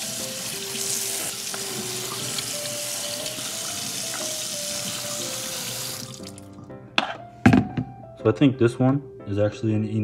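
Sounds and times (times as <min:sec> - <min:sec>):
tap water running into sink: 0:00.0 - 0:06.6
water splashing through colander: 0:00.6 - 0:06.5.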